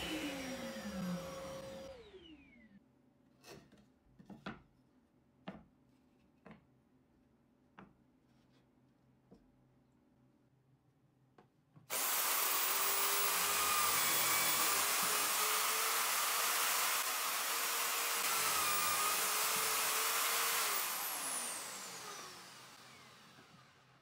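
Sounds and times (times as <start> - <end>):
electric drill whining: 0.0 - 2.7, 11.9 - 24.0.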